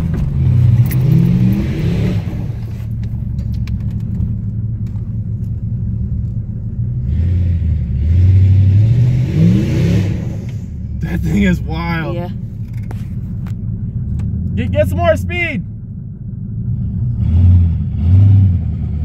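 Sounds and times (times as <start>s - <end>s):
car engine revving hard: 0.0s - 2.7s, 7.0s - 11.8s, 16.7s - 19.0s.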